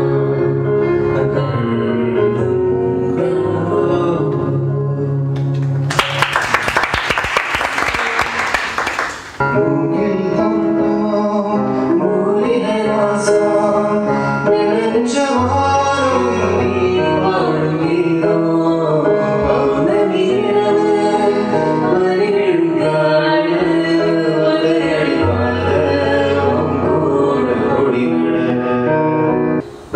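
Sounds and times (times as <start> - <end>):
acoustic accompaniment: 0.0 - 6.2, 8.3 - 29.9
music: 0.0 - 29.9
woman and man singing: 1.2 - 5.3, 9.6 - 28.8
audience applause: 5.6 - 9.4.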